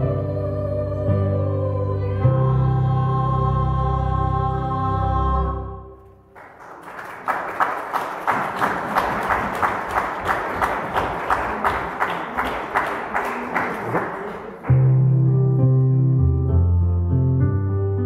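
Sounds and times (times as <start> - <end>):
women's choir singing: 0.0 - 5.8
audience applause: 6.4 - 15.0
keyboard chord: 14.7 - 18.0.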